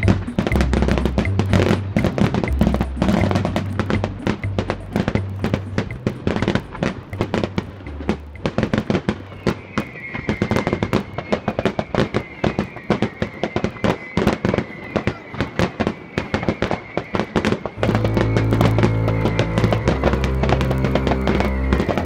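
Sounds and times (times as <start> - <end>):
fireworks bangs and crackles: 0.0 - 22.0
thin high tone: 17.8 - 22.0.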